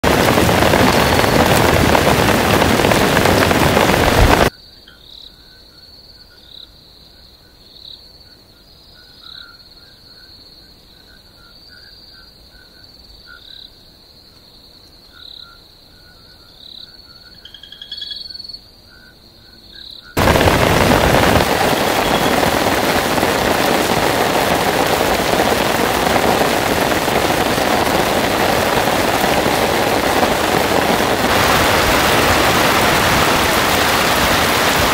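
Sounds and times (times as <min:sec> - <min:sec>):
heavy rain: 0:00.0 - 0:04.5, 0:20.2 - 0:34.9
insects trilling: 0:04.5 - 0:23.9
frogs calling: 0:08.6 - 0:13.9, 0:15.0 - 0:20.5.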